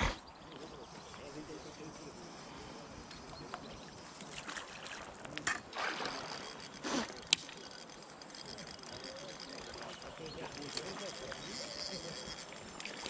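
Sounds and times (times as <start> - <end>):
water splashing: 4.1 - 7.2.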